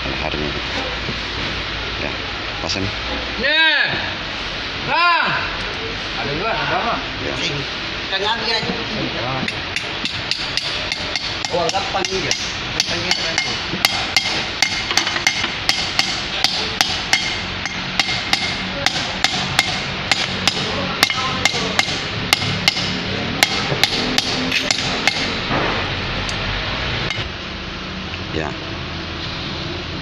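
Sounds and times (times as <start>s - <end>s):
hammer striking metal drift: 9.5s - 26.0s.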